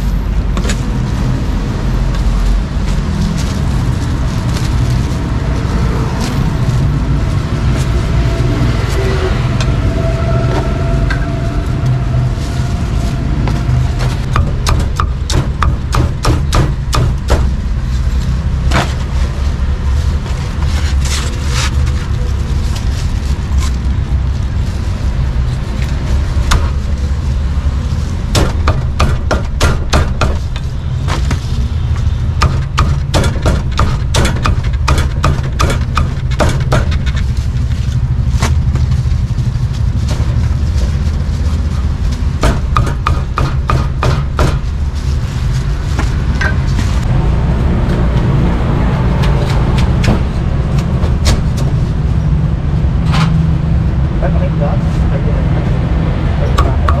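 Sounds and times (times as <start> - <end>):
steady low rumble: 0.0 - 57.0
cleaver chopping on wooden block: 42.4 - 44.6.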